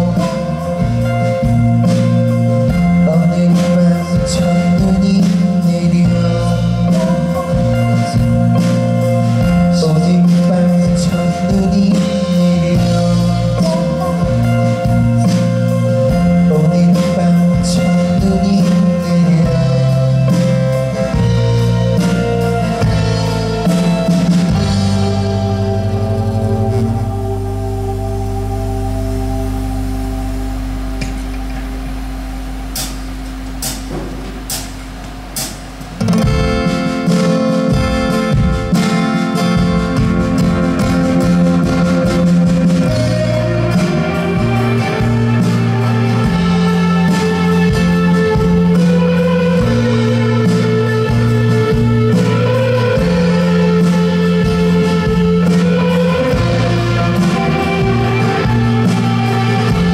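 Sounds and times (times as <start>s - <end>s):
man singing: 0.0s - 2.0s, 2.6s - 28.1s, 41.3s - 59.9s
drum kit: 0.0s - 59.9s
live band music: 0.0s - 59.9s
strummed acoustic guitar: 32.7s - 59.9s.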